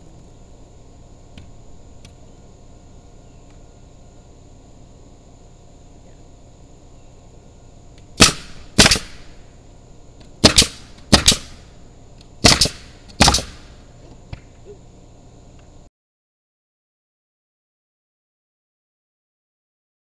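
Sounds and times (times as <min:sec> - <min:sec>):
nail gun shots: 0:08.2 - 0:09.3, 0:10.4 - 0:11.6, 0:12.4 - 0:13.8.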